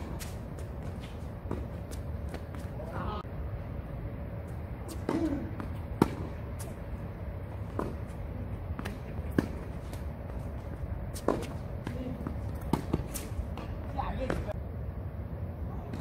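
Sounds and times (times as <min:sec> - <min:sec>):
ball bouncing on hard court: 0:00.0 - 0:02.7, 0:04.9 - 0:06.7, 0:07.6 - 0:14.6
shoe steps on court: 0:00.0 - 0:02.8
racket strikes on tennis ball: 0:05.0 - 0:06.4.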